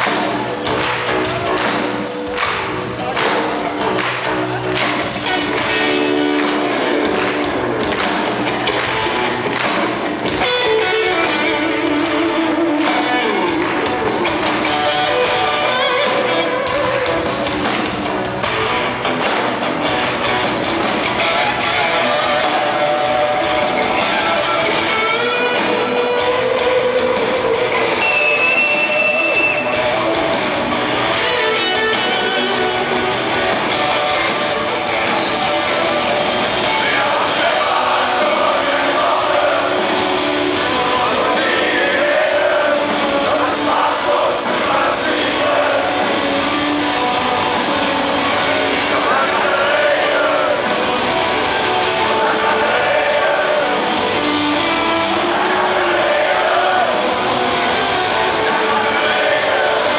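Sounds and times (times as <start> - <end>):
rock band playing: 0.0 - 59.9
man singing: 40.7 - 45.9, 48.7 - 50.7, 52.0 - 53.9.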